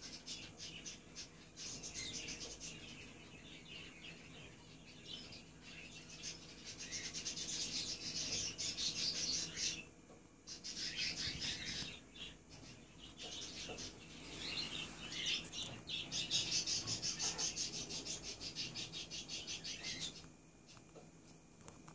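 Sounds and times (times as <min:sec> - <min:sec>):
parakeets chattering: 0:10.5 - 0:20.2.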